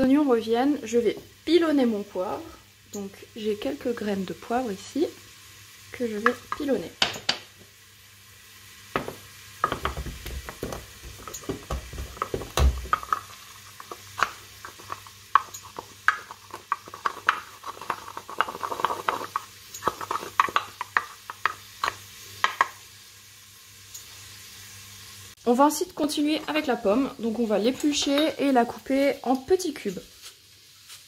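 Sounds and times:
pestle crushing peppercorns: 8.9s - 22.8s.

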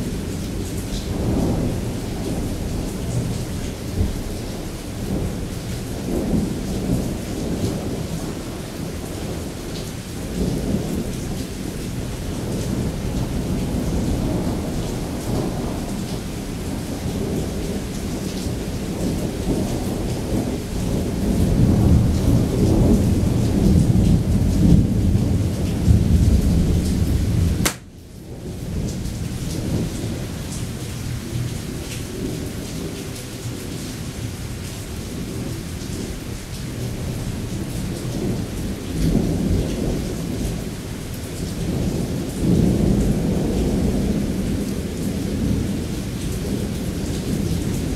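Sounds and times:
heavy rain: 0.0s - 47.9s.

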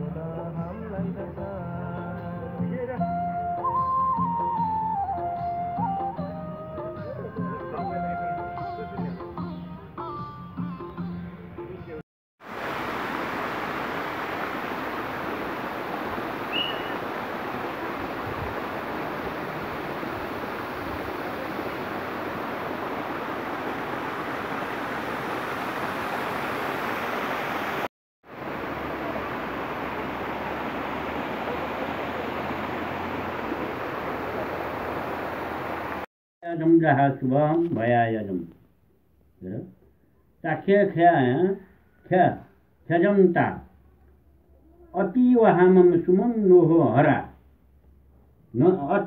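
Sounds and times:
fountain water splashing into pool: 12.4s - 36.1s.

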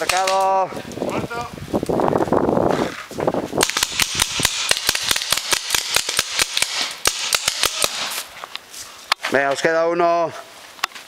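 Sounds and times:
paintball markers firing: 3.6s - 8.3s.

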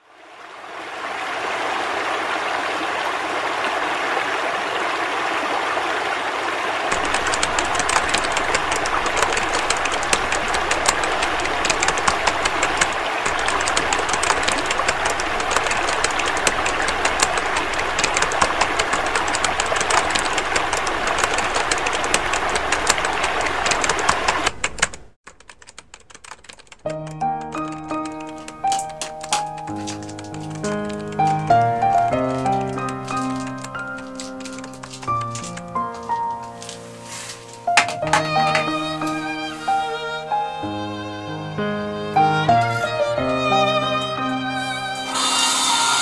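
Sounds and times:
shower water running: 6.8s - 24.6s, 45.1s - 46.0s
fine crackling: 28.1s - 40.5s.

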